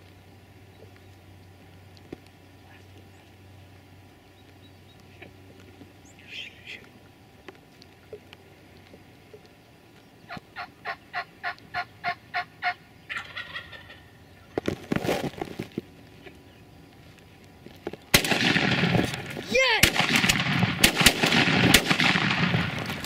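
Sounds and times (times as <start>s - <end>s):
turkey yelping: 10.3s - 14.5s
shotgun blast: 18.1s - 23.0s.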